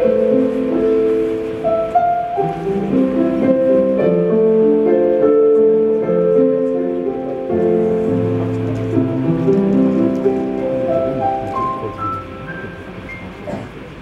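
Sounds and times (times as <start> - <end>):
slow music with held notes: 0.0 - 13.8.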